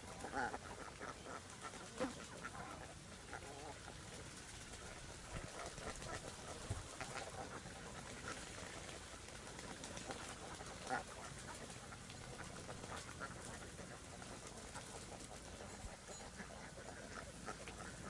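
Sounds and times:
ducks calling: 0:00.0 - 0:03.8, 0:10.0 - 0:18.0.

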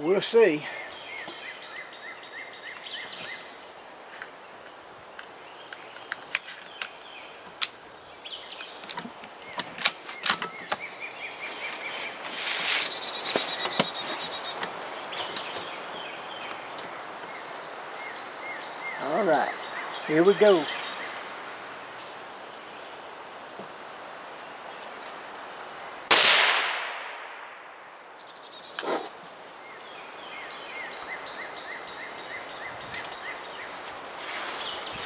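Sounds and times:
birds chirping: 0:00.0 - 0:26.1, 0:27.1 - 0:35.0
rapid high bird trill: 0:11.5 - 0:14.6.

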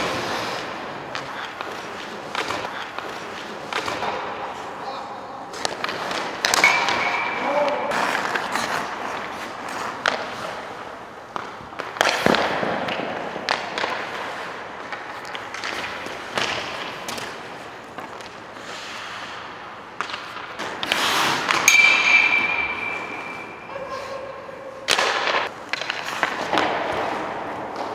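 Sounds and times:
skate blades scraping ice: 0:00.0 - 0:04.8, 0:05.5 - 0:21.7, 0:24.9 - 0:27.9
puck and stick impacts: 0:00.0 - 0:27.9.

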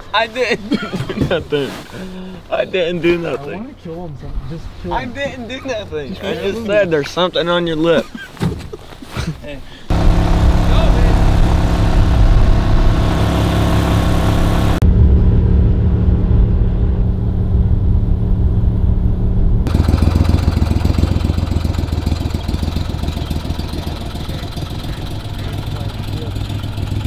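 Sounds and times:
outboard motor running: 0:09.9 - 0:14.8, 0:19.7 - 0:27.0.

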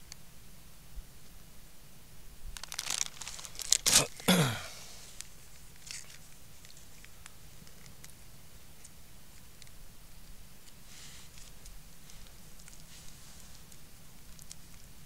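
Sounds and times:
plastic packaging ripping: 0:02.6 - 0:04.3, 0:05.8 - 0:06.8
plastic packaging crinkling: 0:02.6 - 0:04.4, 0:05.1 - 0:08.9.

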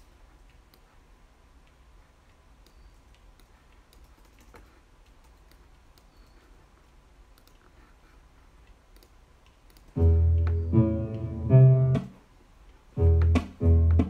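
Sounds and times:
low room hum: 0:00.0 - 0:14.0
mouse and keyboard clicks: 0:01.6 - 0:07.8, 0:08.6 - 0:10.6.

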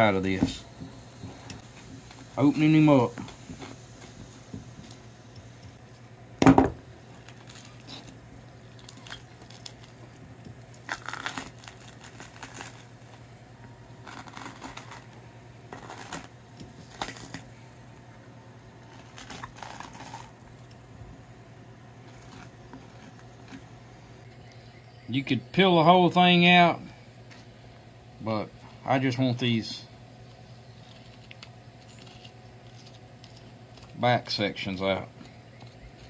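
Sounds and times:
faint steady hum: 0:00.0 - 0:36.0
fish skin tearing and crinkling: 0:07.1 - 0:13.2, 0:14.0 - 0:15.2, 0:15.8 - 0:17.5, 0:18.8 - 0:20.8, 0:22.1 - 0:23.6, 0:30.8 - 0:34.0.

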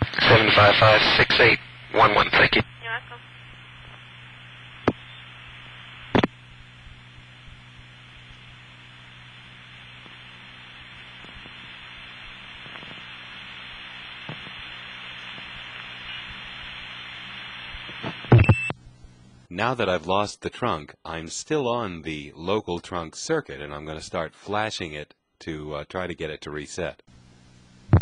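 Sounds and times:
telephone line hiss: 0:00.0 - 0:18.8
steady low hum: 0:00.0 - 0:28.0.

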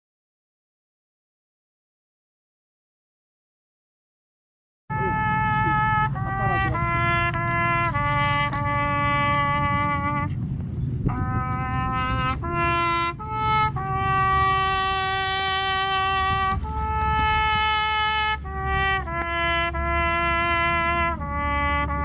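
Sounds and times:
solo trumpet melody: 0:04.9 - 0:22.0.

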